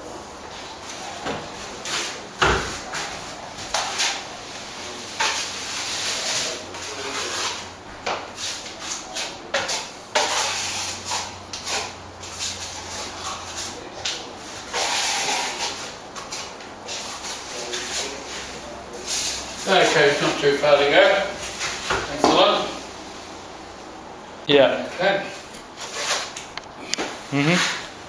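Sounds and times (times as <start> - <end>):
trowel scraping plaster: 5.1 - 7.7, 8.4 - 13.8, 14.6 - 18.4, 25.8 - 26.3.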